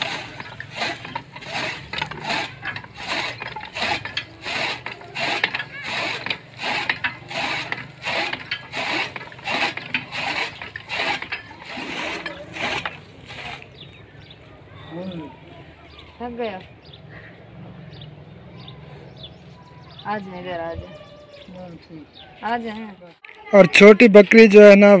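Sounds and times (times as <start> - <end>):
gear and ratchet noise: 0.0 - 14.2
fodder chopper chopping clatter: 0.0 - 14.3.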